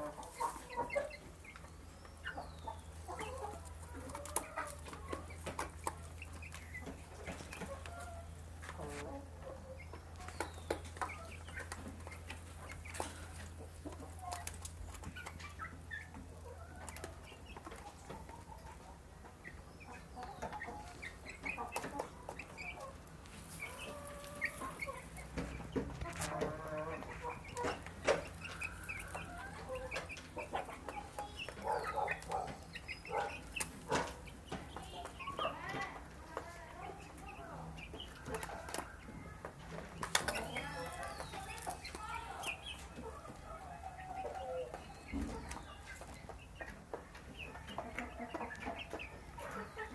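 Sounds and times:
young chickens calling: 0.0 - 49.9.

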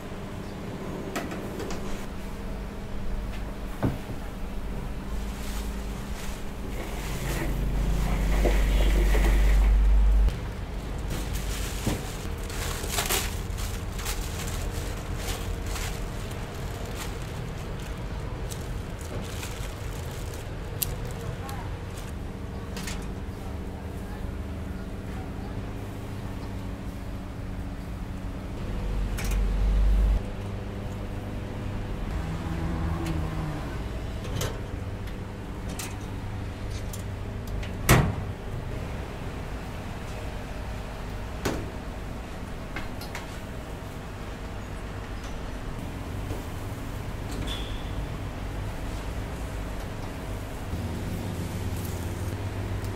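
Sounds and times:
steady low hum: 0.0 - 47.3
grill crackling and popping: 10.6 - 22.2, 49.3 - 52.9.

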